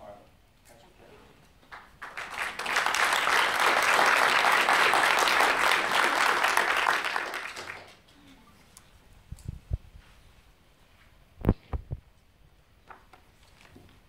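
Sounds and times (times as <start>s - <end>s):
audience applauding: 1.7s - 8.1s.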